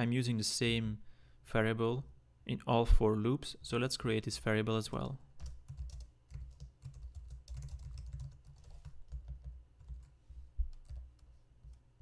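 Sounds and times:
typing on computer keyboard: 0:05.4 - 0:11.8.

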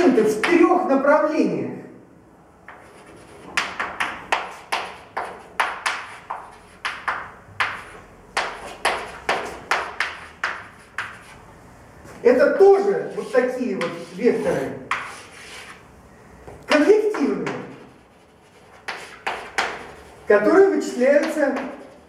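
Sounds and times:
chalk tapping and scratching: 0:02.6 - 0:11.5, 0:12.8 - 0:15.9, 0:16.6 - 0:22.0.

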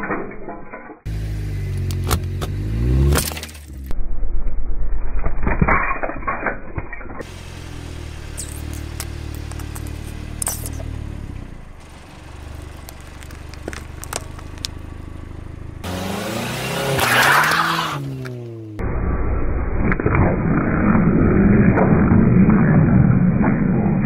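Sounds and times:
car engine idling: 0:01.1 - 0:02.9, 0:07.2 - 0:16.9
plastic cube crunching under tyre: 0:12.6 - 0:14.8.

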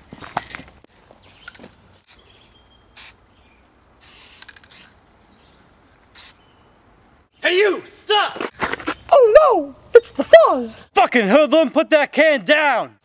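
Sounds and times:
birds chirping: 0:00.0 - 0:04.0, 0:04.8 - 0:07.9, 0:08.8 - 0:10.9
insects chirping: 0:00.0 - 0:11.0
spray paint can hissing: 0:03.0 - 0:03.2, 0:04.0 - 0:05.0, 0:06.1 - 0:06.4.

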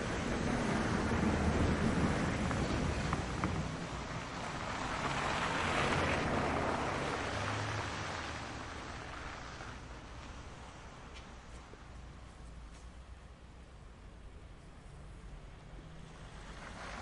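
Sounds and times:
steady rushing noise: 0:00.0 - 0:10.9.

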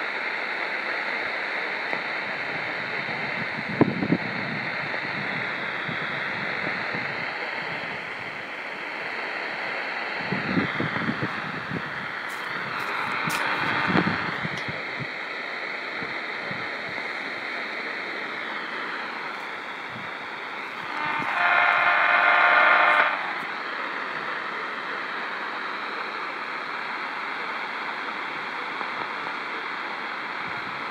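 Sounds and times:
radio static and hiss: 0:00.0 - 0:30.9
loud buzzing tone: 0:01.9 - 0:15.1, 0:18.3 - 0:23.8
radio clicks: 0:12.3 - 0:14.8.

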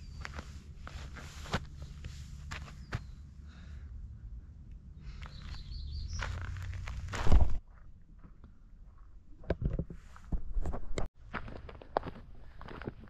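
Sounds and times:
footsteps on dirt trail: 0:00.0 - 0:03.2, 0:05.0 - 0:09.2, 0:10.3 - 0:13.0.

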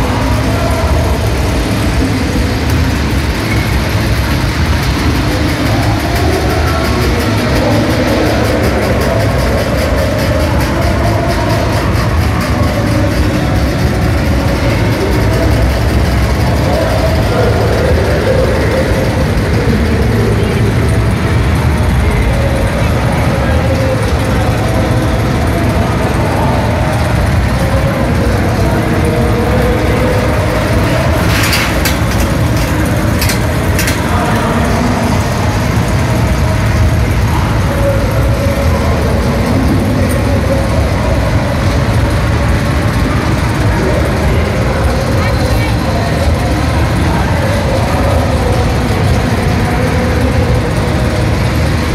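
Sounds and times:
roller coaster rumbling on track: 0:00.0 - 0:51.9.

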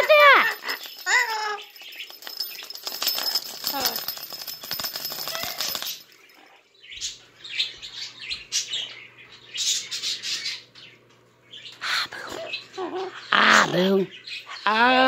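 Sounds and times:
parrot raspy chattering: 0:11.8 - 0:15.0.

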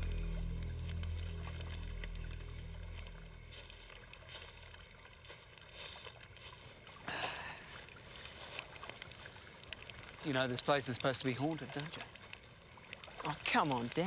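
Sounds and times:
background music: 0:00.0 - 0:04.0
faint outdoor ambience: 0:00.0 - 0:14.0
soft crackles: 0:00.0 - 0:14.0.

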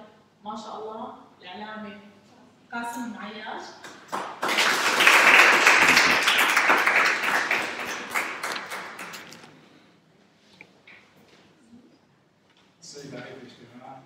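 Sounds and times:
small audience applauding: 0:03.8 - 0:09.6.

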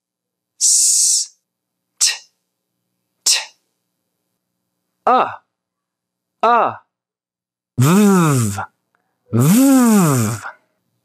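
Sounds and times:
person saying letter sounds: 0:02.0 - 0:02.4, 0:03.2 - 0:03.6, 0:05.0 - 0:05.5, 0:06.4 - 0:06.9, 0:07.8 - 0:10.6.

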